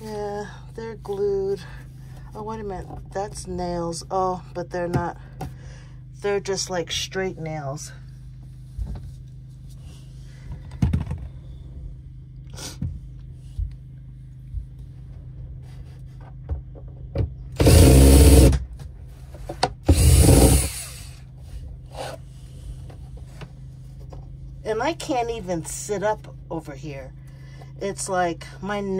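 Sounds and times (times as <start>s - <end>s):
loud rasping bursts: 17.6s - 18.6s, 19.9s - 21.2s.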